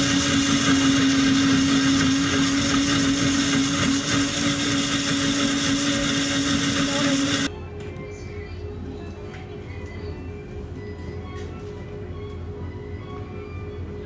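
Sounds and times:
smoothie machine blending: 0.0 - 7.5.

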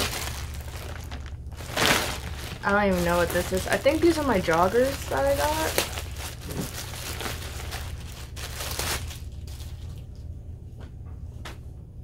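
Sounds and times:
plastic bag crinkling: 0.0 - 10.2.

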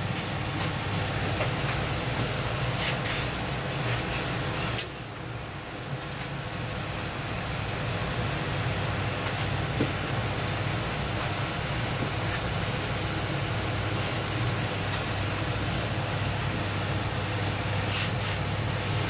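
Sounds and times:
gas burner roaring: 0.0 - 19.0
sharp hiss in hot pan: 17.8 - 18.5.

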